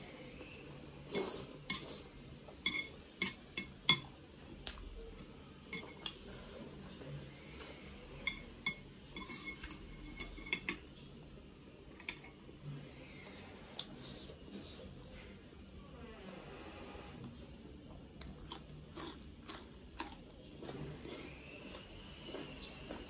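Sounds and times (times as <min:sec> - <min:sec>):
chopsticks tapping a plate: 0:02.6 - 0:04.1
eating sounds: 0:18.2 - 0:21.4.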